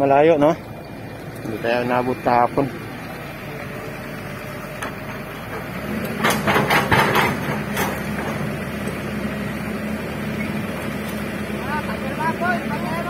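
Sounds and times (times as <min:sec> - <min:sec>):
diesel engine running: 0:00.0 - 0:13.0
metal clanks and knocks: 0:04.8 - 0:09.0.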